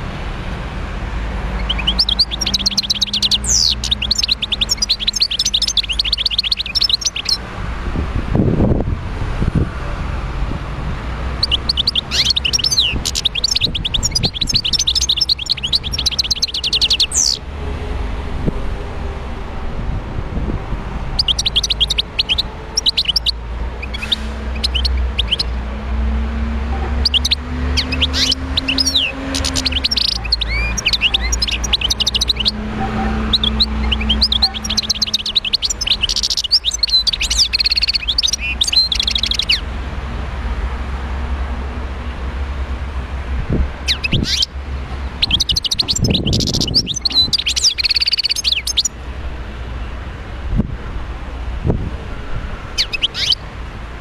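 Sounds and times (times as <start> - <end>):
goldfinch twittering song: 1.5 - 7.4, 11.3 - 17.4, 21.1 - 39.7, 43.8 - 49.0, 52.7 - 53.4.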